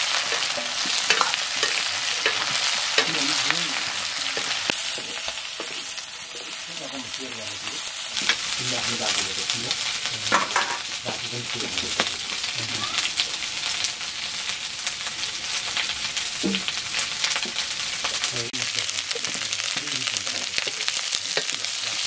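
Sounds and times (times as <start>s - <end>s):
metal ladle scraping and clinking: 0.0s - 6.5s, 19.2s - 22.0s
meat sizzling in a wok: 0.0s - 22.0s.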